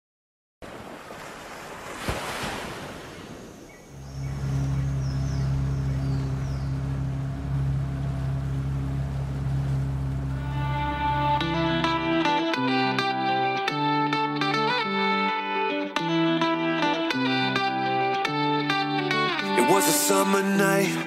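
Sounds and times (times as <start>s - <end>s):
wind: 0.6s - 12.4s
ocean surf: 0.6s - 13.6s
low droning note: 3.9s - 13.2s
guitar music: 4.0s - 21.0s.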